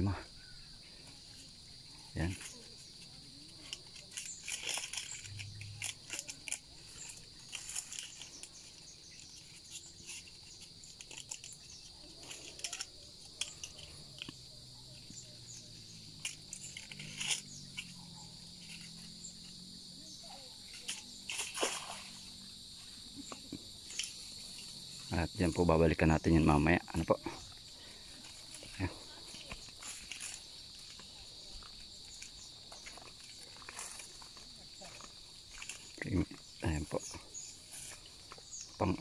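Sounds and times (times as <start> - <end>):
high-pitched insect chorus: 0.0 - 39.0
light clicks and crackles: 2.3 - 14.4.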